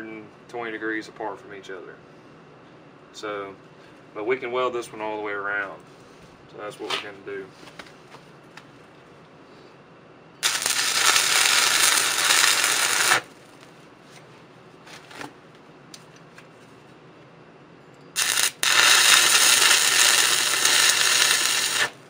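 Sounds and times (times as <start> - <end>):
stick welding arc: 10.4 - 13.3, 18.2 - 22.0.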